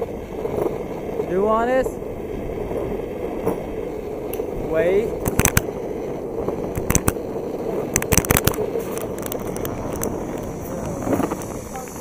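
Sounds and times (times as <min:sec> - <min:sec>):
skateboard rolling on pavement: 0:00.0 - 0:12.0
sharp clicks and cracks: 0:04.2 - 0:12.0.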